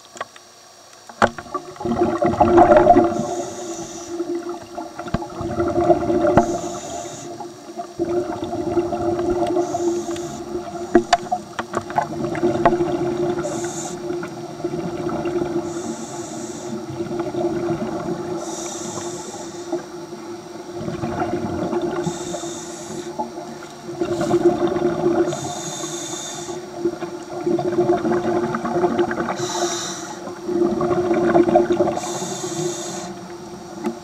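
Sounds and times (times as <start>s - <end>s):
steady low hum: 0.0s - 34.0s
underwater bubbling: 0.0s - 34.0s
regulator breathing hisses: 3.0s - 4.6s, 6.3s - 7.9s, 9.4s - 11.6s, 13.4s - 14.3s, 15.5s - 17.0s, 18.3s - 20.2s, 22.0s - 24.6s, 25.2s - 26.8s, 29.3s - 30.5s, 31.8s - 33.3s.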